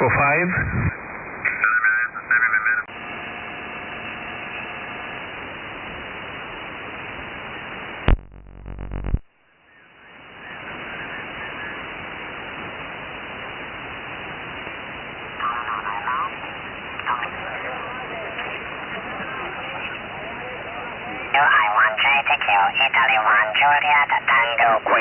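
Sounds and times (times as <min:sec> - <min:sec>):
radio voice transmission: 0:00.0 - 0:02.9, 0:15.4 - 0:25.0
radio static hiss: 0:00.0 - 0:25.0.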